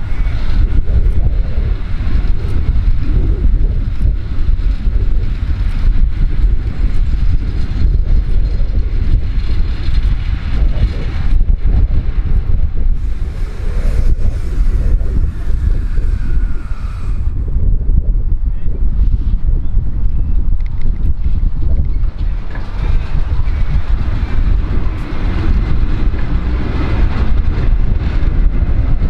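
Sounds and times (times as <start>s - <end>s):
electric train rumbling: 0.0s - 19.2s, 20.2s - 29.0s
wind buffeting microphone: 0.0s - 29.0s.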